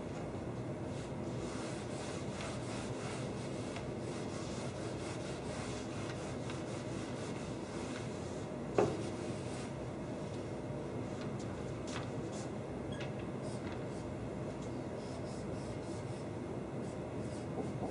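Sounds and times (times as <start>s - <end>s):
eraser rubbing on whiteboard: 0.9s - 9.8s, 15.0s - 17.9s.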